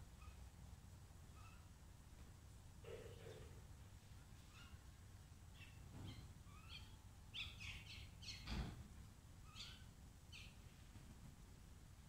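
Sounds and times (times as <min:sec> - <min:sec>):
birds calling: 0:05.5 - 0:08.5, 0:09.4 - 0:10.6.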